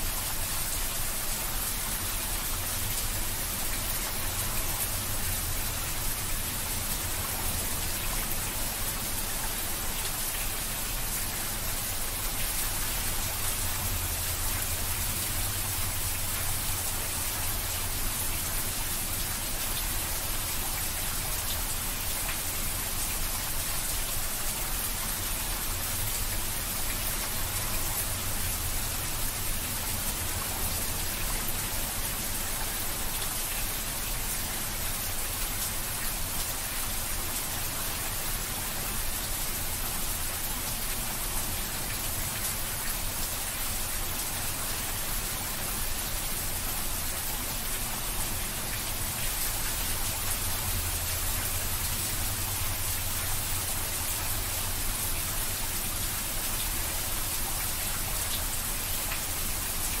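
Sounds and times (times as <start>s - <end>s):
heavy rain: 0.0s - 60.0s.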